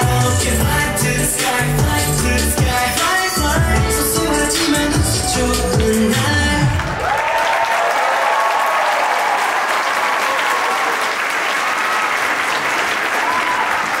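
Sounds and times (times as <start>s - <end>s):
audience clapping: 6.6s - 14.0s
audience shouting: 13.2s - 14.0s.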